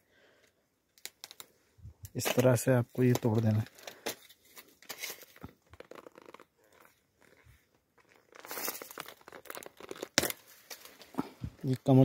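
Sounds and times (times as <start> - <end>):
plant stalk crackling and tearing: 3.0 - 11.1.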